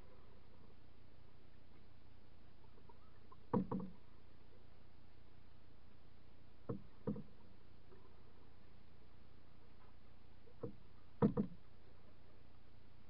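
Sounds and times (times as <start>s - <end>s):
steady low hiss: 0.0s - 13.0s
paddle knocking against canoe: 3.3s - 4.0s, 6.6s - 7.5s, 9.8s - 11.7s.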